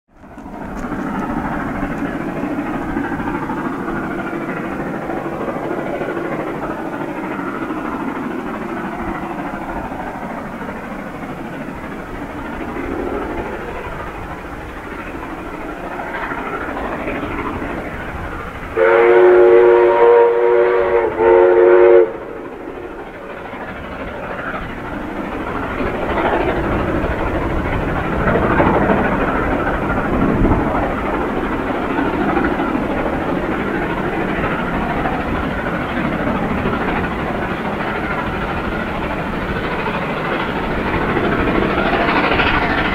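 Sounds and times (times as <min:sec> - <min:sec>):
steam locomotive rumble: 0:00.1 - 0:42.9
locomotive chime whistle: 0:18.8 - 0:22.3.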